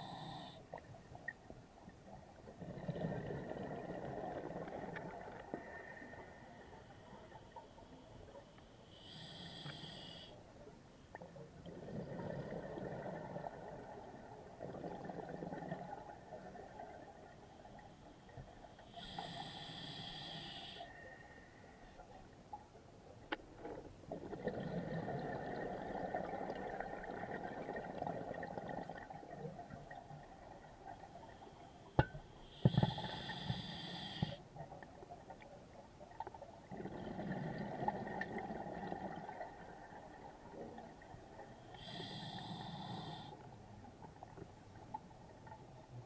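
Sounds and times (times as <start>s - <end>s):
exhaled bubbles gurgling: 2.4s - 6.5s, 11.6s - 17.4s, 24.1s - 31.4s, 36.5s - 43.2s
regulator hissing inhalations: 18.8s - 20.9s, 32.4s - 34.4s.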